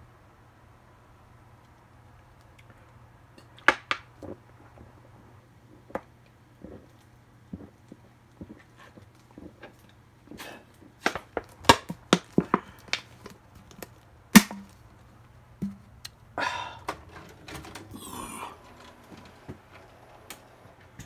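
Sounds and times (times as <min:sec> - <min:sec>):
scraping rustles: 0:16.9 - 0:21.0.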